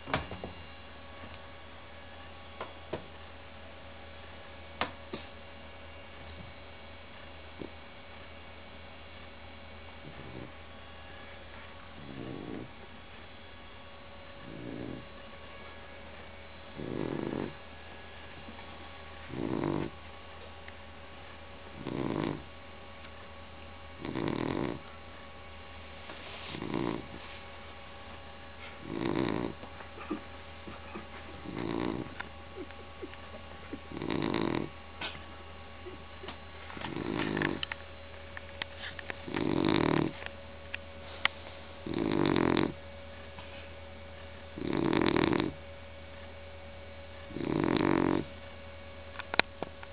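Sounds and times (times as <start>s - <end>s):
dog snoring: 7.1s - 7.8s, 10.0s - 12.9s, 14.3s - 18.4s, 19.2s - 20.0s, 21.2s - 22.5s, 24.0s - 25.3s, 26.4s - 27.3s, 28.6s - 35.2s, 35.8s - 37.8s, 39.1s - 40.3s, 41.8s - 43.5s, 44.1s - 45.6s, 47.1s - 48.5s.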